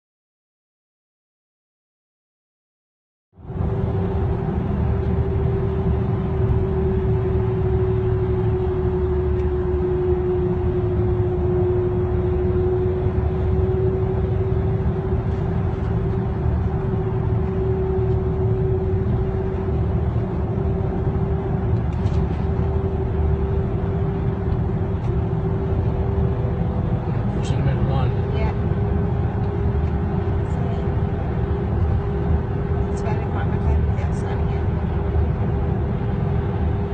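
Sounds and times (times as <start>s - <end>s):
car cabin road noise: 3.4s - 36.9s.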